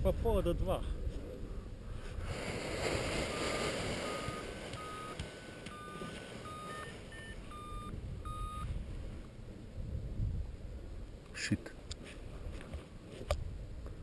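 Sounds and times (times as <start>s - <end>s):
wind rumble on microphone: 0.0s - 5.8s, 6.8s - 14.0s
variometer beeping: 3.3s - 8.7s.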